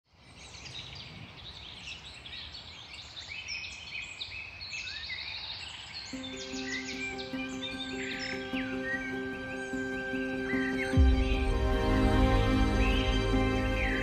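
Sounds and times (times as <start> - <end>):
songbirds chirping and trilling: 0.1 - 14.0
music with held notes: 6.2 - 14.0.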